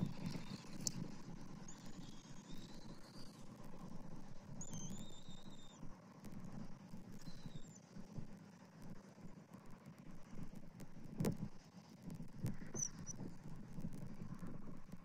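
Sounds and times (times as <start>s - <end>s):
high whistled bird calls: 12.8s - 13.2s.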